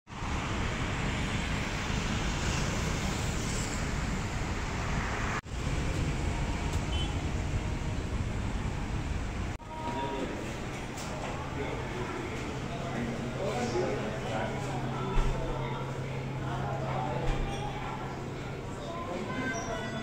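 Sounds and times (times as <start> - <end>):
road traffic rumble: 0.1 - 9.7.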